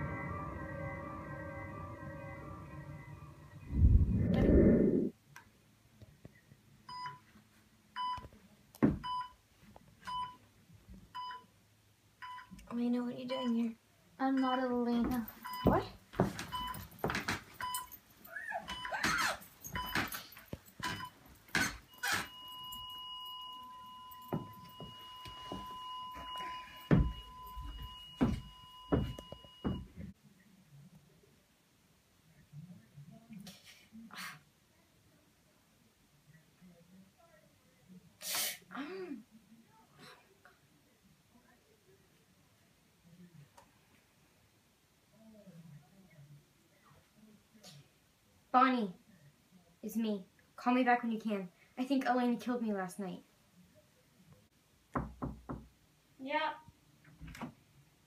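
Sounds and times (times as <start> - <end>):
heart monitor beeping: 9.0 - 9.4, 15.4 - 18.0, 18.7 - 20.2, 20.8 - 30.1.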